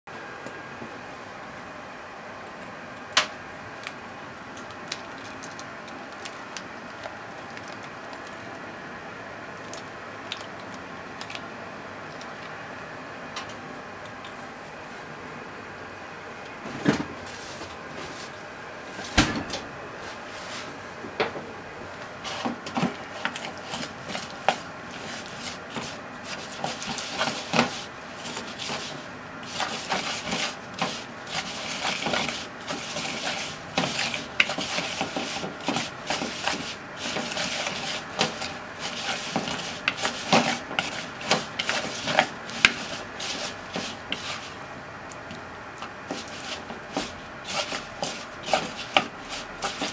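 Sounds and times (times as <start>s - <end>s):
scraping and rubbing: 22.2s - 44.6s, 46.1s - 49.9s.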